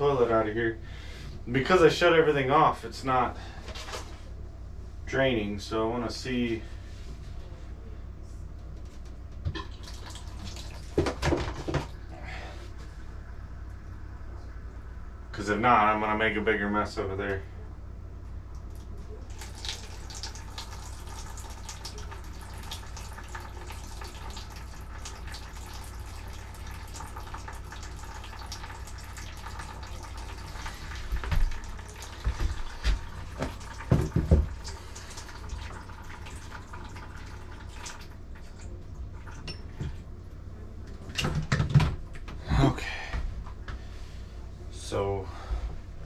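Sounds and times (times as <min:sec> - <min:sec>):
water running into plastic tub: 0:09.5 - 0:11.9, 0:19.3 - 0:39.9.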